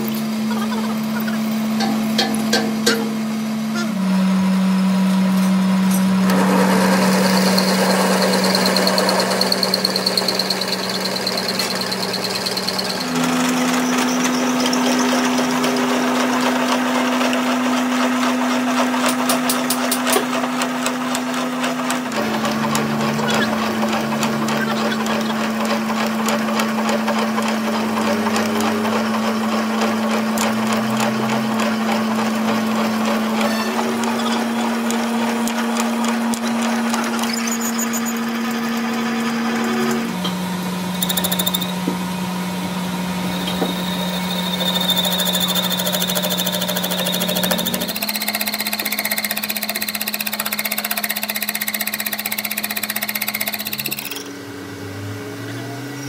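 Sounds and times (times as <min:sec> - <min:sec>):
tool cutting metal: 0:00.0 - 0:04.0, 0:05.0 - 0:42.0, 0:43.2 - 0:54.4
lathe motor hum: 0:00.0 - 0:55.3.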